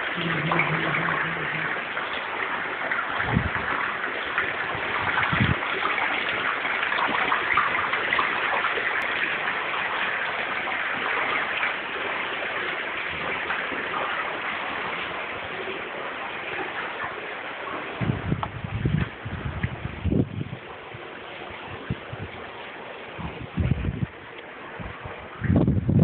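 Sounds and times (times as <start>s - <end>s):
running water rushing: 0.0s - 26.0s
dull low bumps: 18.0s - 20.7s, 23.2s - 26.0s.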